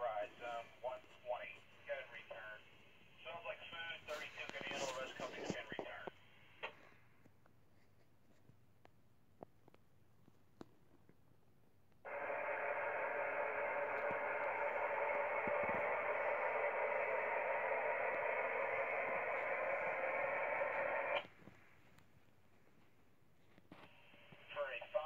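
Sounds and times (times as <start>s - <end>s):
radio static hiss: 0.0s - 6.9s, 12.1s - 21.6s, 23.7s - 25.0s.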